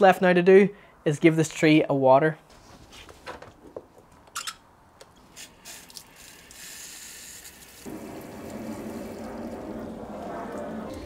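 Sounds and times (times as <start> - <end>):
hose spray gun hissing water: 5.3 - 11.0.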